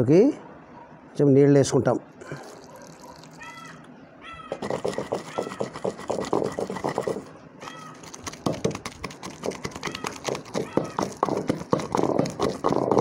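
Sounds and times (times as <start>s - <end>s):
high animal calls: 2.5s - 5.9s, 6.8s - 8.1s, 9.8s - 11.3s
pestle thudding in stone mortar: 4.5s - 7.3s, 8.0s - 13.0s.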